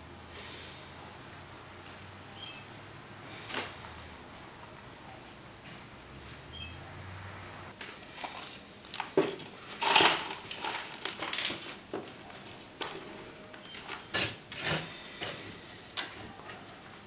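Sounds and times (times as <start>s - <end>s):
potting mix rustling and crunching: 7.8s - 13.4s.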